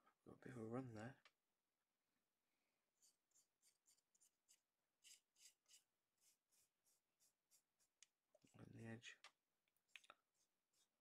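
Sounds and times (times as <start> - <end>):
paintbrush strokes on plastic: 2.9 - 9.0, 9.8 - 11.0.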